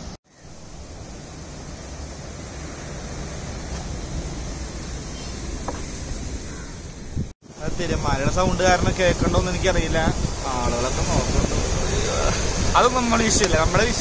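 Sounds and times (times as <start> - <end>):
sea surf rushing: 0.0 - 14.0
wind noise on microphone: 3.7 - 14.0.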